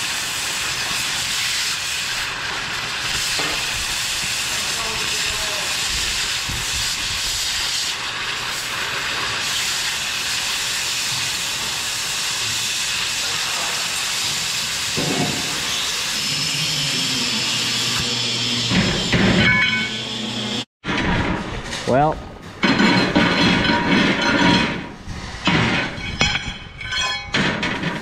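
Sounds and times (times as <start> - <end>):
cutting torch hissing: 0.0 - 20.7.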